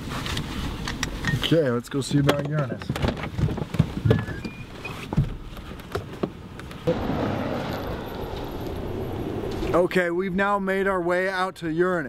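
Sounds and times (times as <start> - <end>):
knocks clicks and rustles: 2.1 - 6.8
steady outdoor hiss: 4.7 - 12.0.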